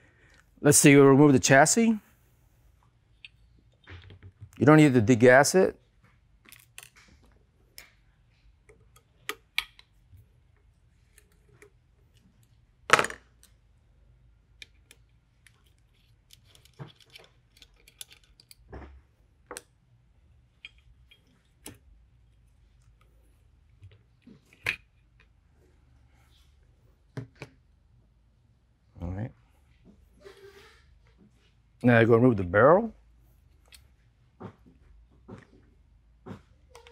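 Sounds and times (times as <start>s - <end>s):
metal tools clicking and knocking: 14.6s - 18.7s.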